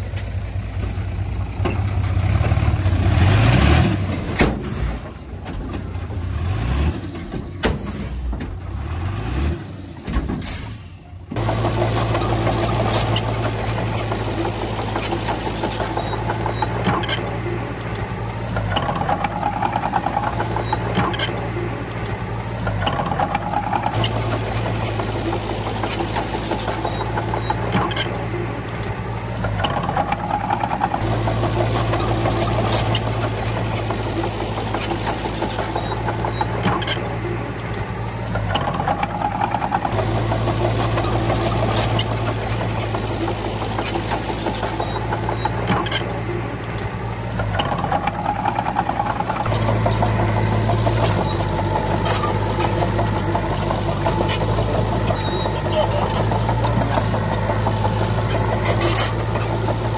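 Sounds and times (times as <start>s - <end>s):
heavy machinery diesel engine: 0.0s - 59.9s.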